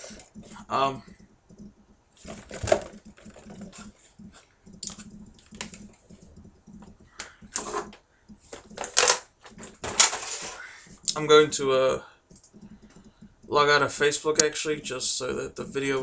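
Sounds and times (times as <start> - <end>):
clicks and rustling at desk: 0.0 - 11.1.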